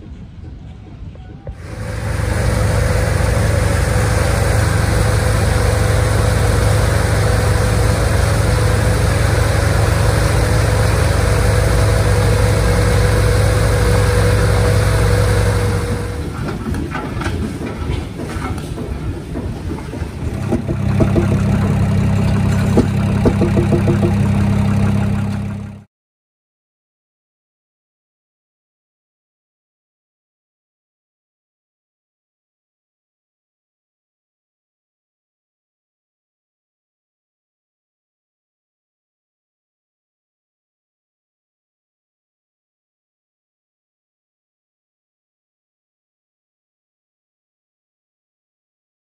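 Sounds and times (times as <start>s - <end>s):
different engine running: 1.6s - 18.9s, 19.8s - 25.9s
propeller aircraft engine running: 1.6s - 25.9s.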